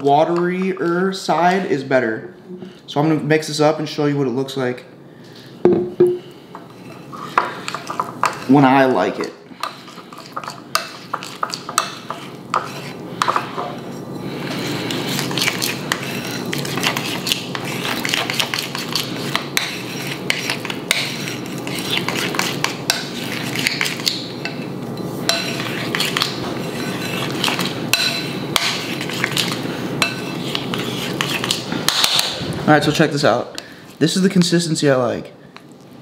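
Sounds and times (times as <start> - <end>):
metal spoon scraping ceramic bowl: 9.6 - 13.9, 25.3 - 31.6.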